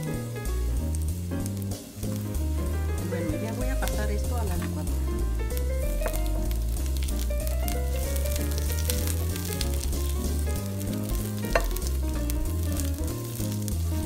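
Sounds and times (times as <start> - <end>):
background music: 0.0 - 14.0
spatula scraping a frying pan: 8.0 - 14.0.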